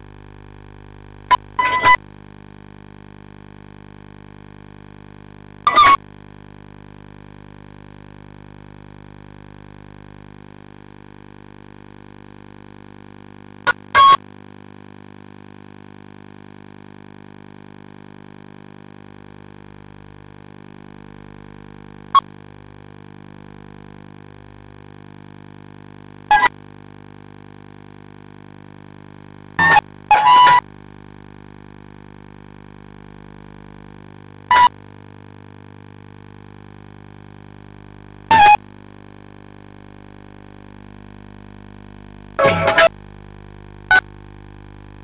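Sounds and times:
steady electrical hum: 0:00.0 - 0:22.8, 0:27.7 - 0:34.6.

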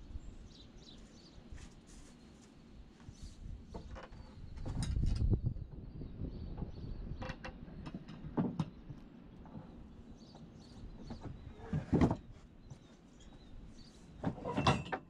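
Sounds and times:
wooden boards knocking and scraping: 0:11.1 - 0:12.3.

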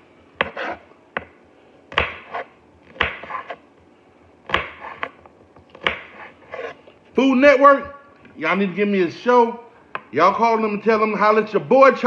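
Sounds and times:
knife chopping on cutting board: 0:00.4 - 0:01.3, 0:01.9 - 0:03.6, 0:04.4 - 0:06.8.

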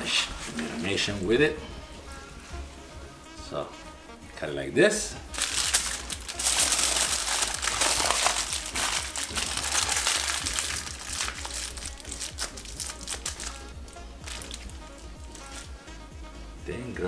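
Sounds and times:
aluminium foil crinkling: 0:05.3 - 0:15.7.

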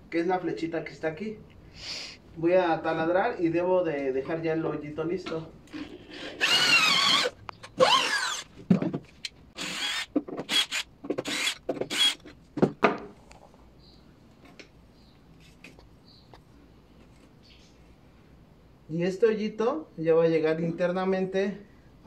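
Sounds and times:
drill whining in bursts: 0:06.2 - 0:08.5, 0:09.6 - 0:12.2.

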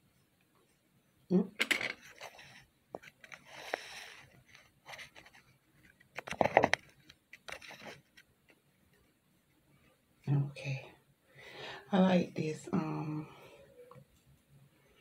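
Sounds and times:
handling scraping and rustling: 0:01.7 - 0:08.6.

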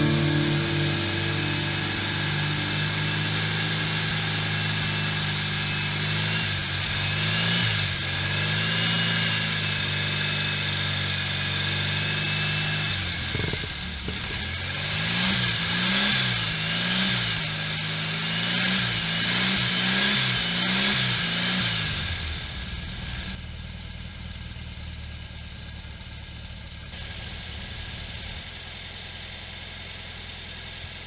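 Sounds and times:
air-cooled engine revving: 0:00.0 - 0:23.4.

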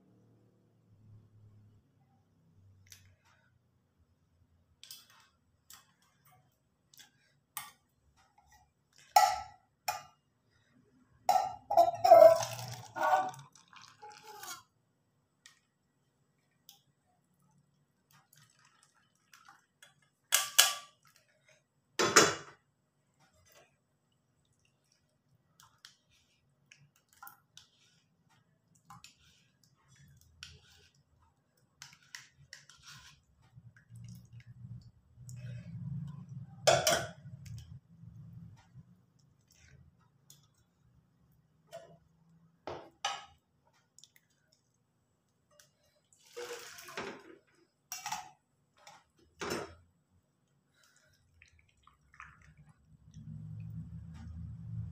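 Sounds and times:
steel kitchenware clinking: 0:07.6 - 0:10.2, 0:11.3 - 0:13.3, 0:35.5 - 0:37.8, 0:47.9 - 0:48.4.

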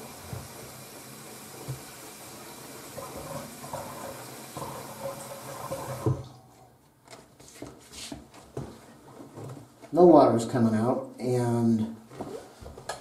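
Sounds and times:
faucet shutting off knock: 0:00.0 - 0:00.7, 0:01.5 - 0:02.1, 0:02.8 - 0:06.3
faucet running into sink: 0:00.0 - 0:06.4.

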